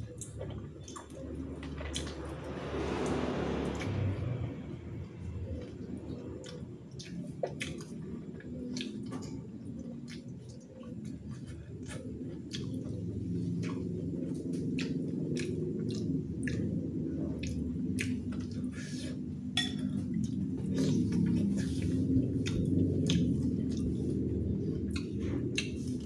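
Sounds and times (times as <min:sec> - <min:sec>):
sharp chewing clicks: 0:00.0 - 0:04.5, 0:05.4 - 0:26.0
low steady drone: 0:00.0 - 0:26.0
man chewing and sucking meat: 0:05.2 - 0:26.0.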